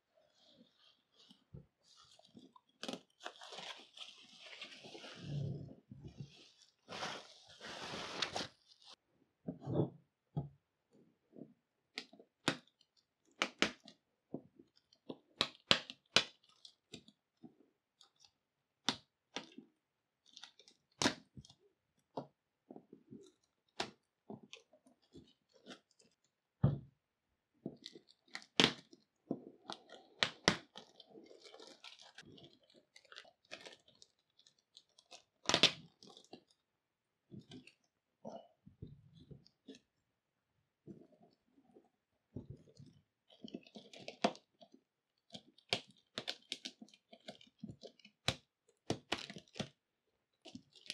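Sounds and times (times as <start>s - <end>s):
bubble wrap rustling: 1.8s - 5.5s, 6.3s - 9.0s.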